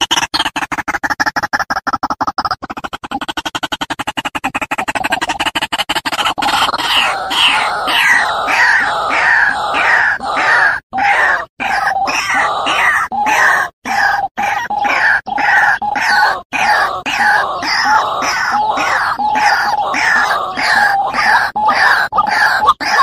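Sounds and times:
waterhen calling: 6.1 - 23.0.

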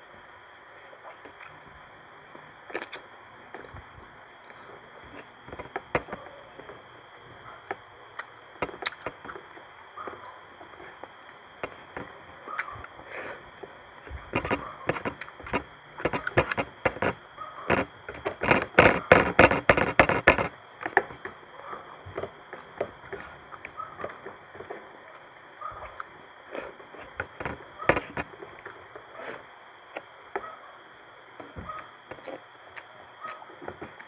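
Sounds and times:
chewing and lip-smacking: 2.7 - 3.0, 28.5 - 28.8.

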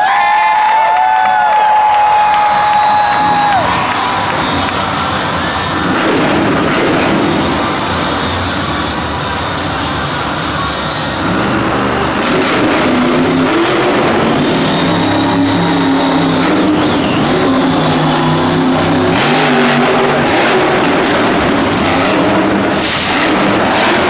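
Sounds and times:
truck engine revving: 2.2 - 24.0.

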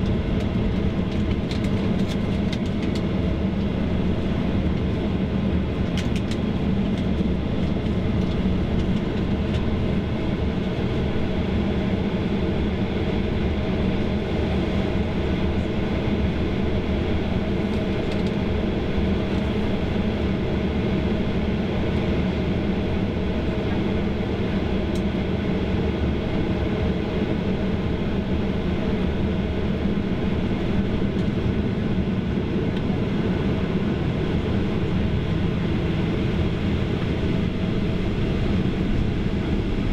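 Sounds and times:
jet engines at low power: 0.0 - 39.9
rush of cabin air: 0.0 - 39.9
low hum: 27.2 - 39.9.

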